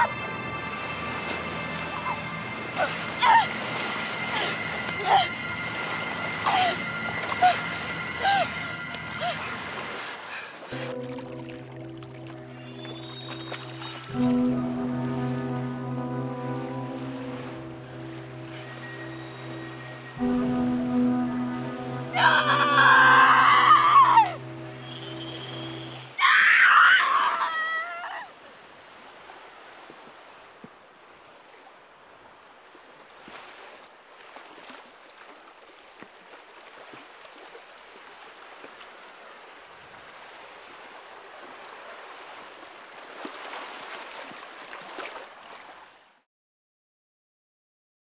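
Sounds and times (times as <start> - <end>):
loud wavering cry: 1.8 - 9.7, 22.1 - 28.2
small waves breaking on beach: 27.0 - 46.2.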